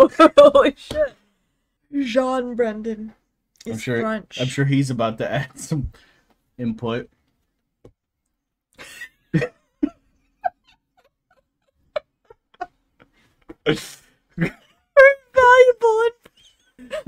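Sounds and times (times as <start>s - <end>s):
man and woman laughing: 8.8s - 15.0s, 16.3s - 17.0s.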